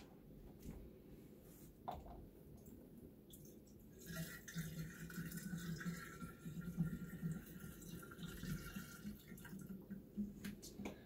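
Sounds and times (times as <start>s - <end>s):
water pouring into a pipe: 3.3s - 10.2s.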